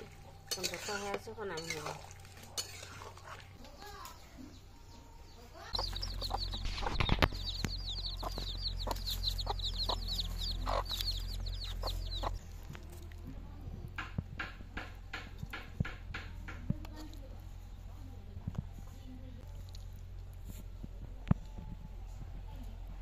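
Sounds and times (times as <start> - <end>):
chicks peeping: 3.2 - 13.1
hen clucking: 5.6 - 12.6.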